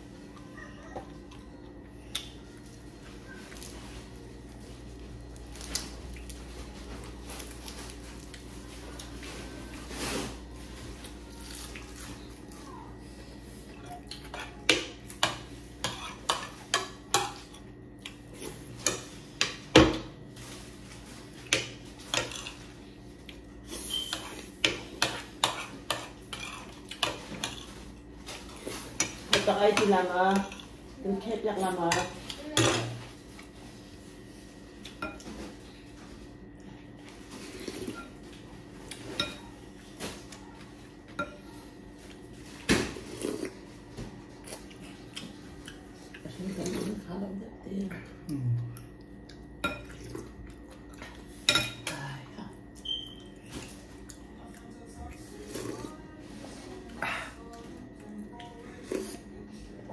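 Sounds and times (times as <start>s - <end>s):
spoons clinking on plates: 51.4s - 52.0s.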